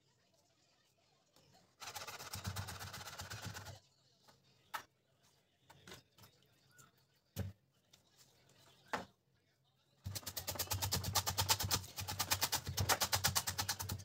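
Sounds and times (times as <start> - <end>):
knife chopping on plastic board: 10.1 - 14.0.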